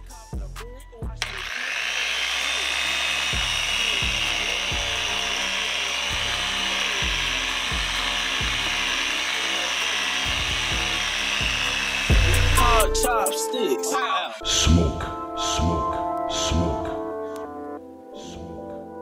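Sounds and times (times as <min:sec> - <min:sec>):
hip-hop music with kick drum: 0:00.0 - 0:01.4, 0:03.2 - 0:05.4, 0:06.1 - 0:17.8
orbital polisher running: 0:01.2 - 0:13.3.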